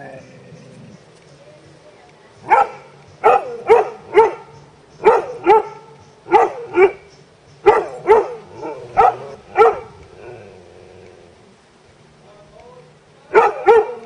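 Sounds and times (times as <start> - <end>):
dog barking: 2.5 - 7.0, 7.6 - 9.9, 13.3 - 14.0.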